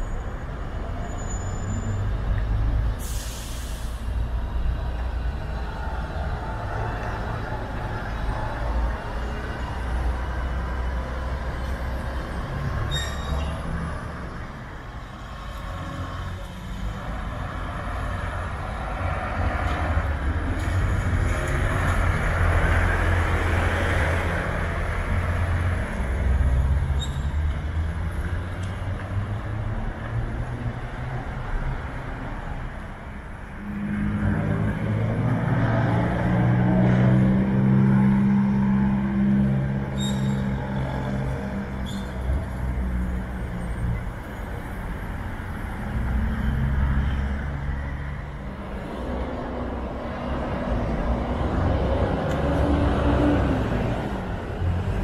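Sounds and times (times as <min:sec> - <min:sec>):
bus engine rumble: 0:00.0 - 0:55.0.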